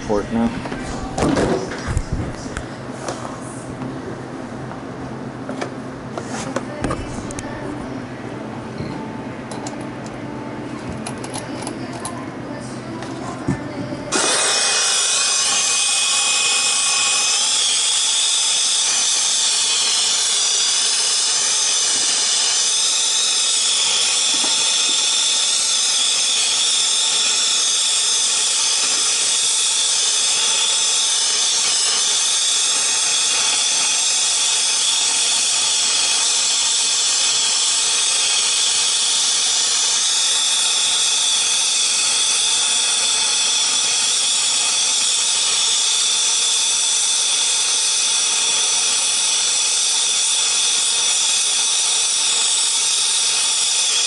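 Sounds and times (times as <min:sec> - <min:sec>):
torch flame hissing: 0:14.1 - 0:54.0.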